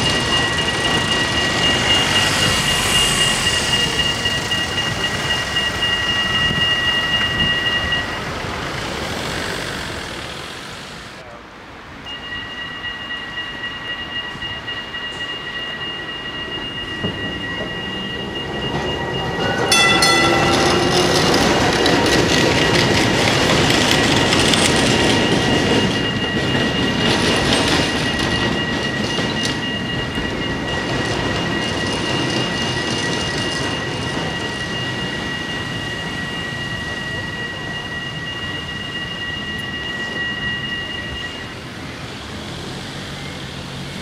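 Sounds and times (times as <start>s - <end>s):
crossing warning bell ringing: 0.0s - 11.2s, 12.0s - 43.8s
tram wheels squealing on rails: 0.0s - 44.0s
tram horn: 18.7s - 23.0s.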